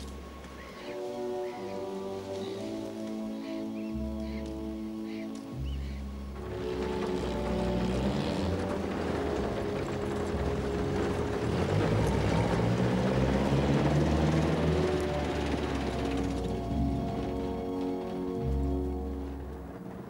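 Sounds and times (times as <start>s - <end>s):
car driving over cobblestones: 0.0s - 20.0s
orchestral music: 0.0s - 20.0s.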